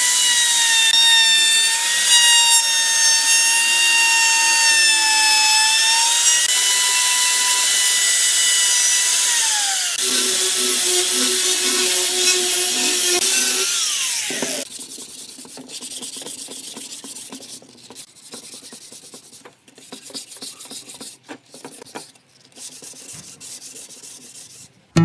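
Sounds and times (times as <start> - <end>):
angle grinder winding down: 4.9 - 14.6
hand sanding wood with sandpaper: 10.0 - 24.7.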